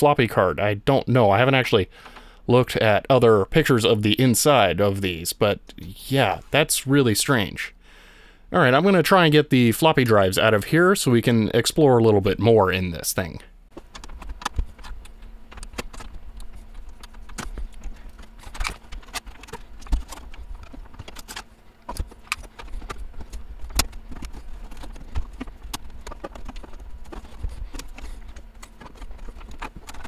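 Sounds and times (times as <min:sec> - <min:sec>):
hands clicking and knocking on computer: 0:13.7 - 0:30.0.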